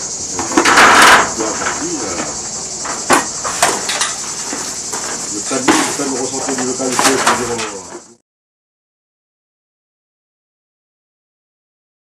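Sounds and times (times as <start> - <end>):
insects chirring: 0.0 - 8.2
voices: 0.0 - 8.2
knocks on timber: 2.8 - 7.6.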